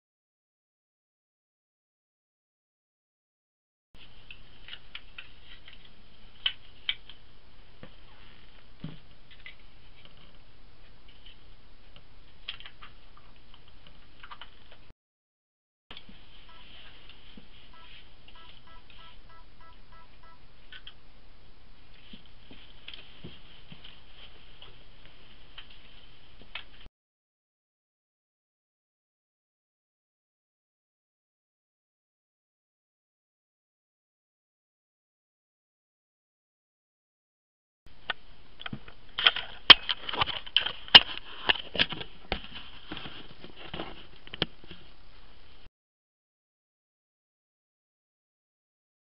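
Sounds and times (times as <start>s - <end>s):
short electronic beeps: 17.7s - 20.4s.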